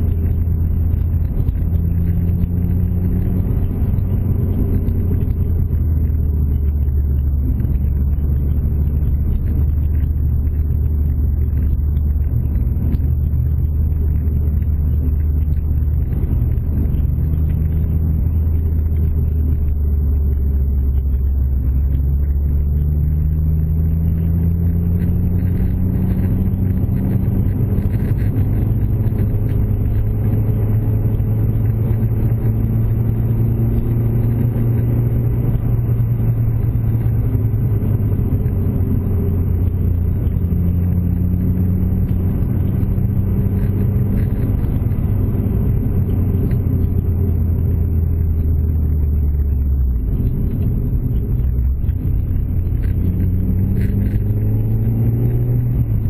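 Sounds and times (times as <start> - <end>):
car engine running: 0.0 - 56.0
tyre and road noise: 0.0 - 56.0.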